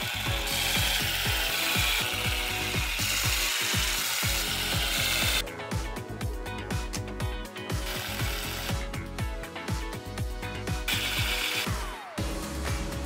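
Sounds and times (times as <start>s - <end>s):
power screwdriver driving screws: 0.0s - 5.4s, 7.8s - 8.9s, 10.9s - 11.8s.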